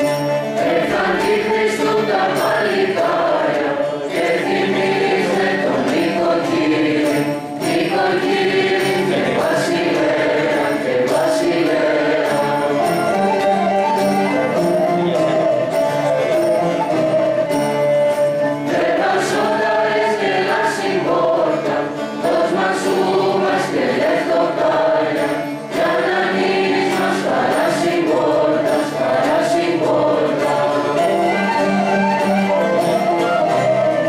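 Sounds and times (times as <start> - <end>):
small folk ensemble playing: 0.0 - 34.0
youth choir singing a carol: 0.6 - 13.3, 18.6 - 31.8.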